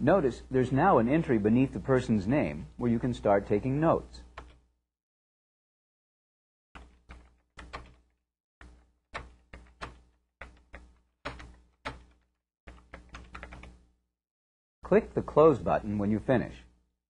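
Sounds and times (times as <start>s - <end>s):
keyboard typing clicks: 4.4s - 4.6s, 6.8s - 8.1s, 8.7s - 13.8s.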